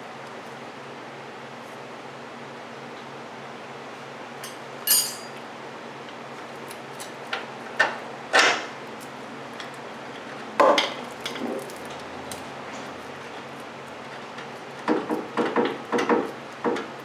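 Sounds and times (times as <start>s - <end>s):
metal hardware clinking: 4.4s - 5.4s.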